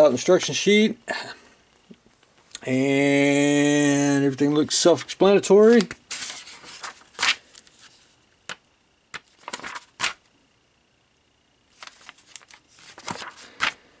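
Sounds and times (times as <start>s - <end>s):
paper pages rustling: 5.0s - 8.2s, 9.1s - 10.2s, 11.7s - 13.8s.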